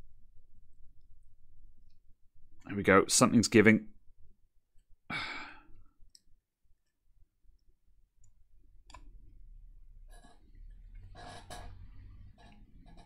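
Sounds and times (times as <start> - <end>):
person sighing: 5.1 - 6.0.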